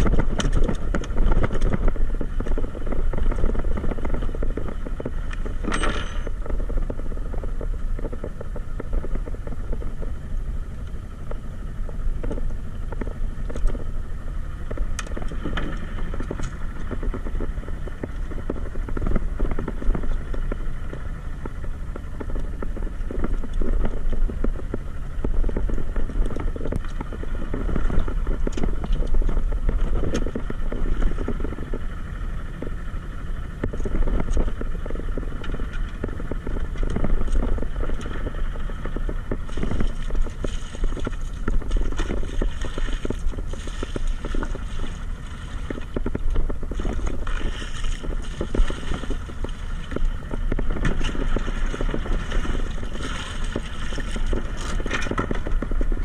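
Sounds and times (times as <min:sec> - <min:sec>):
boat engine low rumble: 0:00.0 - 0:56.0.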